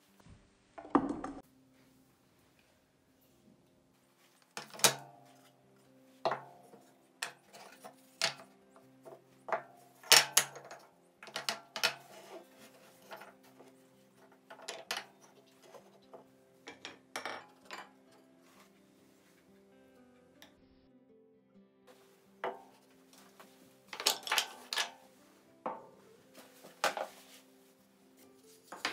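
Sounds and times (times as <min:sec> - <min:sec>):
soft background music: 0:00.0 - 0:28.9
wood pieces clacking on workbench: 0:04.5 - 0:05.1, 0:06.3 - 0:08.5, 0:09.1 - 0:12.3, 0:13.0 - 0:18.0, 0:23.9 - 0:25.0.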